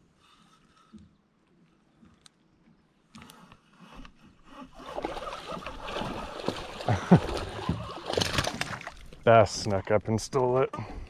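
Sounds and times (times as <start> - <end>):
water splashing from thrashing fish: 4.8 - 9.2.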